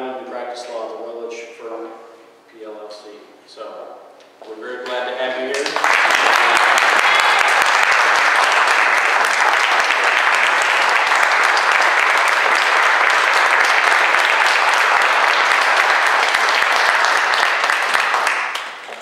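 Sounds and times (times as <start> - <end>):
audience applause: 5.5 - 19.0.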